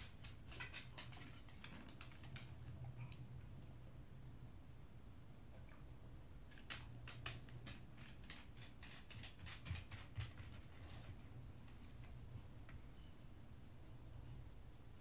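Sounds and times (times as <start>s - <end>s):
dog claws clicking on wooden floor: 0.0s - 2.9s, 6.5s - 12.1s.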